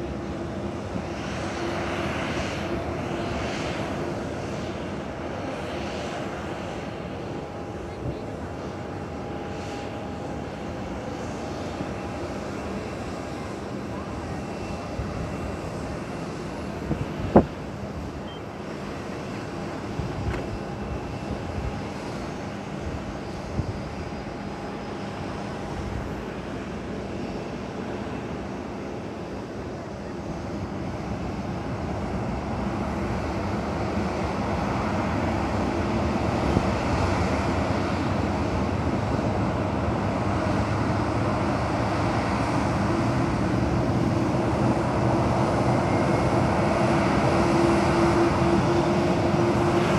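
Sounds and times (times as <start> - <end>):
jet engines whining: 0.0 - 49.9.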